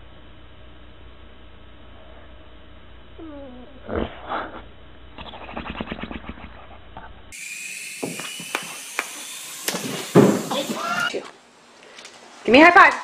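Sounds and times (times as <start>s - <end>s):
dog whining in sleep: 3.2s - 4.5s
fluttering growl-snore: 3.2s - 4.6s
toy helicopter motor whine: 7.3s - 11.2s.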